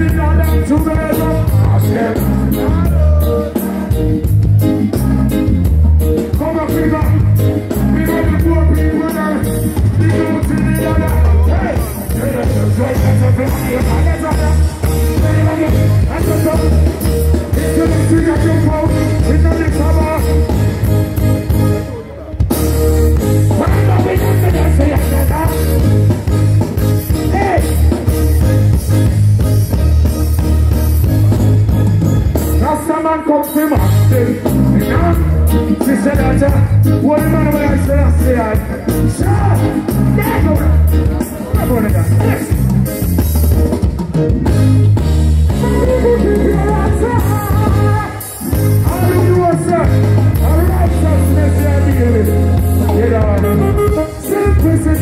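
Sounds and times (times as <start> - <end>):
man singing into a microphone: 0.0 - 20.4, 23.5 - 25.8, 32.6 - 42.5, 45.5 - 55.0
reggae band playing: 0.0 - 55.0.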